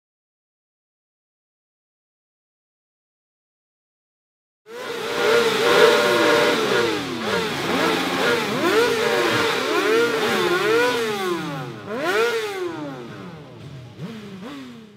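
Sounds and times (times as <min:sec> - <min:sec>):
motorcycle engines revving: 0:04.7 - 0:14.9.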